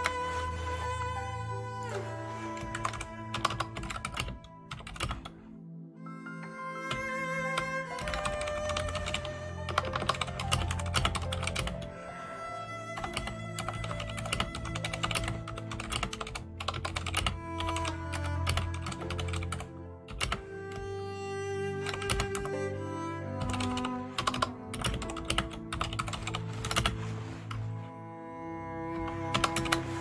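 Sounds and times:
soft cello music: 0.0s - 30.0s
typing on computer keyboard: 2.6s - 5.4s, 6.9s - 11.8s, 13.0s - 20.4s, 21.8s - 22.4s, 23.4s - 26.9s, 29.3s - 29.8s.

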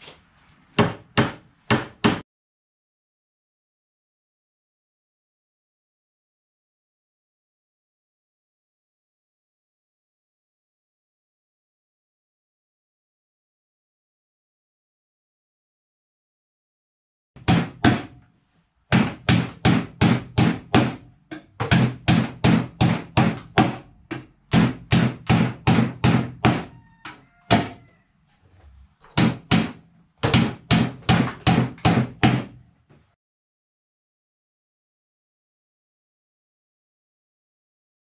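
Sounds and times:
hammer driving nails into wood: 17.4s - 18.2s, 18.9s - 26.7s, 29.1s - 32.6s.

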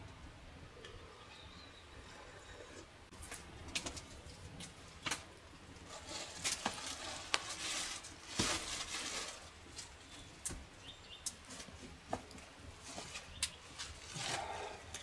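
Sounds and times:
rustling noise: 2.7s - 10.6s, 11.4s - 14.6s
campfire crackling and popping: 3.1s - 5.8s.

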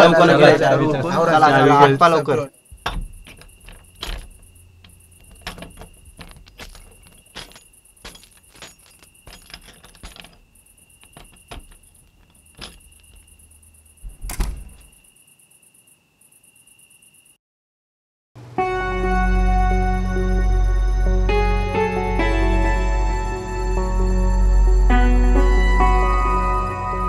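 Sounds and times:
footsteps: 2.7s - 14.9s
small clicks and knocks: 2.7s - 14.9s.

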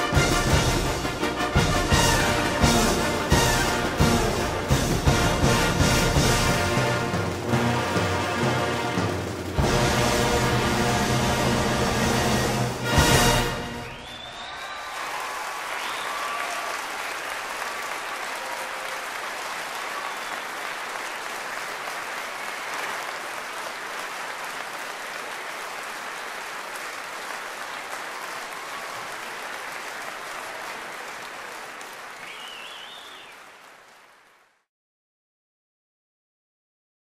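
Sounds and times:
large audience clapping: 0.0s - 34.7s.

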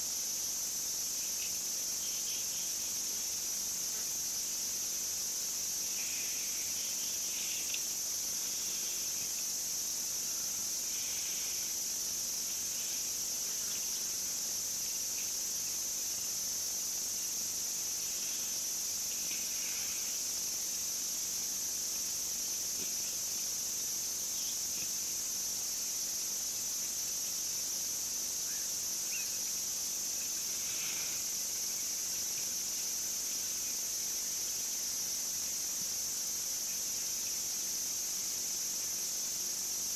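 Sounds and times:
insects trilling: 0.0s - 39.9s
faint chirps: 1.1s - 16.4s, 24.0s - 25.1s, 28.3s - 35.6s.

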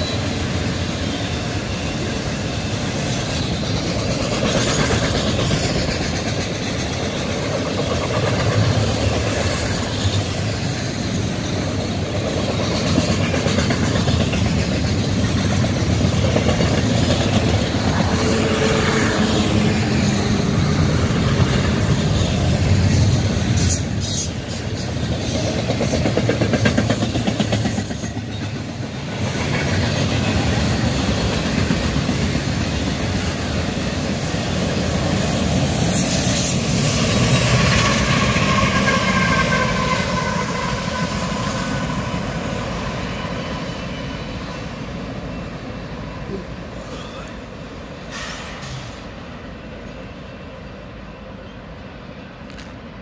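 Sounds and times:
wheels clicking over rail joints: 0.0s - 36.4s
freight train rumbling past: 0.0s - 53.0s.

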